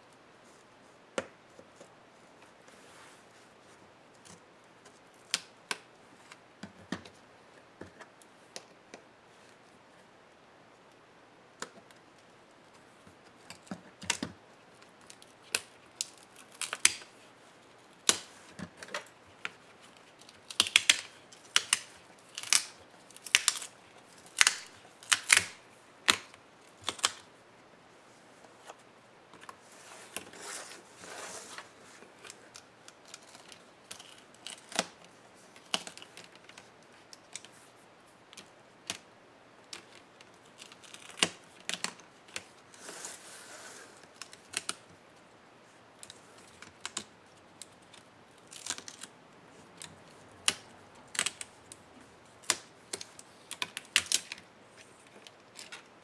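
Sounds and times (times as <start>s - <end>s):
soft scraping rustle: 0.1s - 3.9s, 29.5s - 32.6s, 42.6s - 44.2s
plastic clips clicking and snapping: 18.0s - 23.7s, 24.3s - 27.2s.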